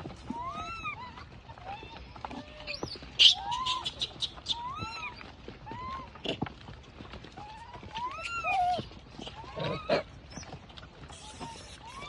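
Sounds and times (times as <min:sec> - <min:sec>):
macaques coo calling: 0:00.3 - 0:06.4, 0:07.5 - 0:10.0, 0:11.1 - 0:12.0.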